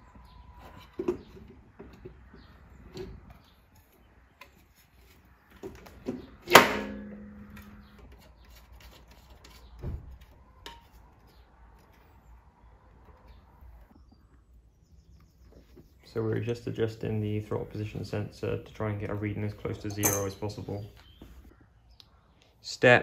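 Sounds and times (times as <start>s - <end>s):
sharp metallic clink: 19.8s - 20.6s.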